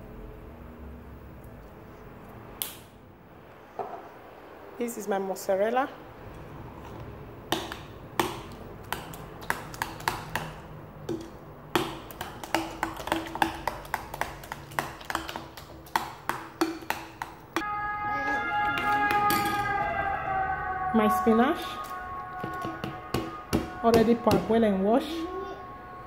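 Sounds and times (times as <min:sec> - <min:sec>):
spoon clinking on ceramic bowl: 0:18.8 - 0:19.8.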